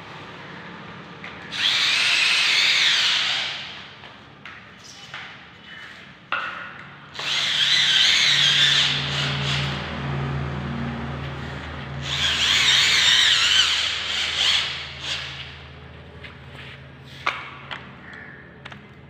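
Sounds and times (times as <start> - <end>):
electric drill boring: 1.5 - 3.8, 7.1 - 10.0, 12.0 - 15.6.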